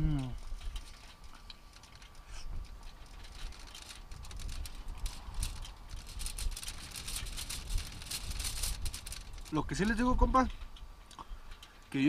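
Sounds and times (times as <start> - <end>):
steady low rumble: 0.0 - 11.7.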